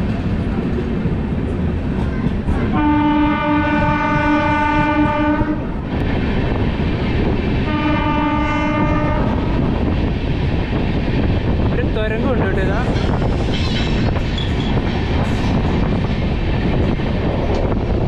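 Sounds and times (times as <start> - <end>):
moving train rumble: 0.0 - 18.0
train horn blasts: 2.7 - 5.7, 7.7 - 9.5.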